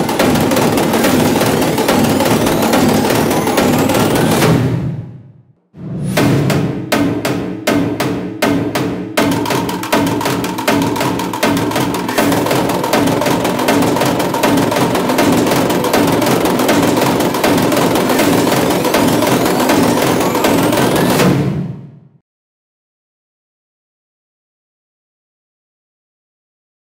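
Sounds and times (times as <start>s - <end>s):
background music with percussion: 0.0s - 5.2s, 5.8s - 21.9s
sharp drum hits: 0.0s - 22.1s.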